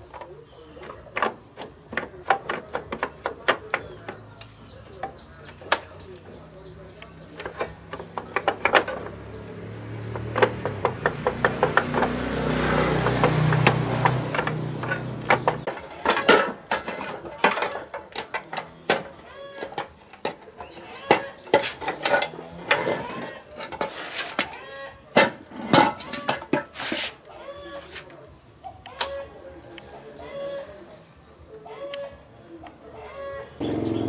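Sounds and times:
tools and metal parts clinking: 13.0s - 26.9s.

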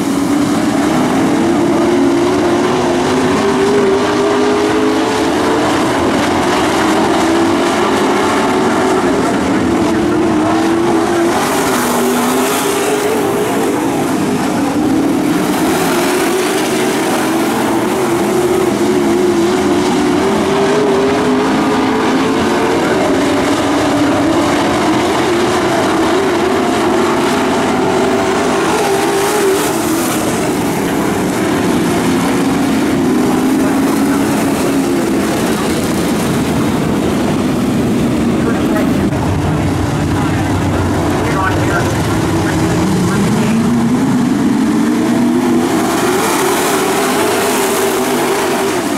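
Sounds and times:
racing truck engines revving: 0.0s - 48.9s.

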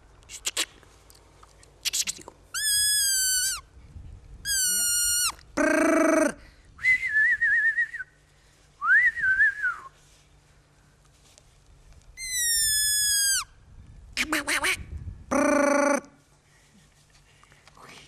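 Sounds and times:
person whistling: 6.8s - 8.1s, 8.8s - 10.0s.

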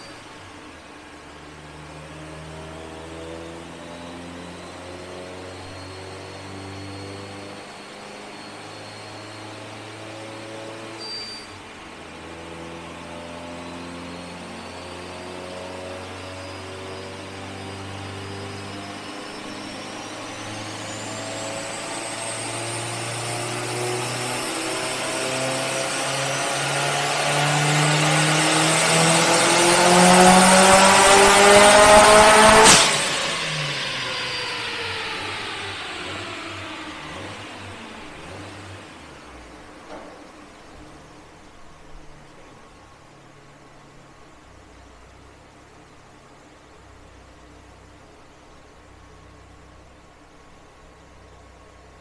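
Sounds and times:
car engine revving on dyno: 0.0s - 42.6s
turbo whistle: 3.9s - 10.0s, 11.0s - 11.7s
dyno rollers winding down: 17.6s - 42.1s.

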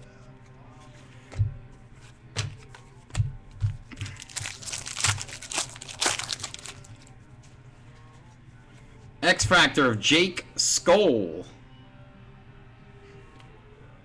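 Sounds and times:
trading cards rustling and snapping: 2.4s - 7.1s.

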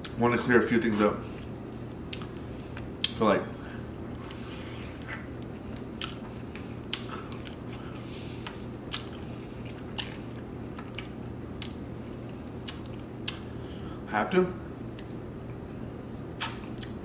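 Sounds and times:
person chewing wetly: 2.0s - 3.2s, 3.9s - 13.4s.

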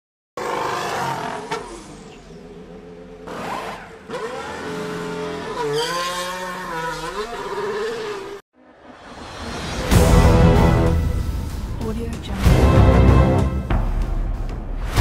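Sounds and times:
racing car engine revving: 0.4s - 8.4s.

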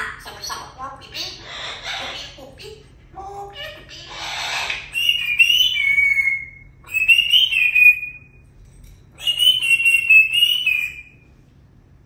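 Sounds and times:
parrot whistling: 3.8s - 8.4s, 9.2s - 11.2s.

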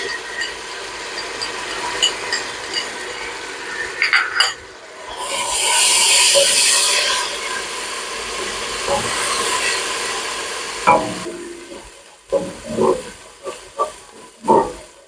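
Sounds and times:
paste sizzling in hot oil: 0.0s - 4.0s, 4.9s - 15.0s
spatula stirring in pot: 10.9s - 15.0s.

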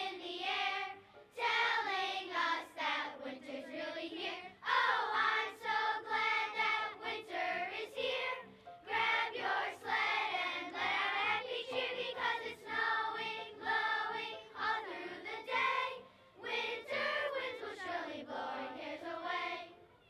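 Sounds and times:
children's choir singing: 0.0s - 19.9s.

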